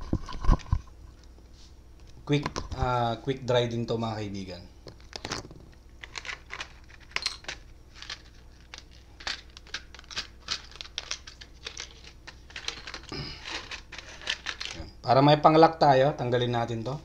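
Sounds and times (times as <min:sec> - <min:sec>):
small objects clicking and scraping: 0:04.8 - 0:14.9.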